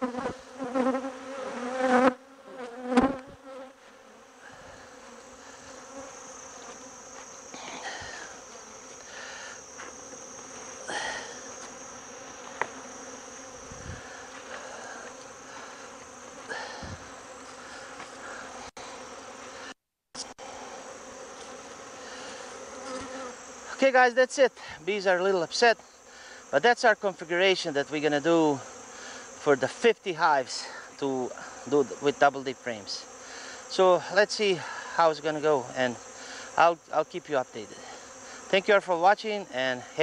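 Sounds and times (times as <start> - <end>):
bees buzzing: 0.0 - 40.0.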